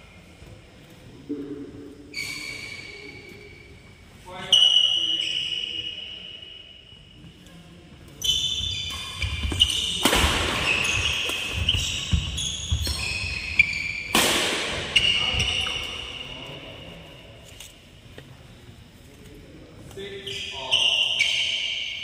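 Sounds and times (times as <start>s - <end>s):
shoes squeaking on court: 7.1s - 17.8s, 19.9s - 22.0s
racket hitting shuttlecock: 8.9s - 13.4s, 14.0s - 15.8s.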